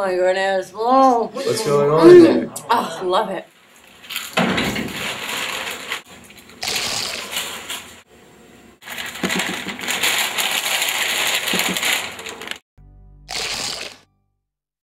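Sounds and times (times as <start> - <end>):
chip bag rustling: 3.8 - 8.0, 8.8 - 12.6
chips sliding in bag: 8.8 - 12.6.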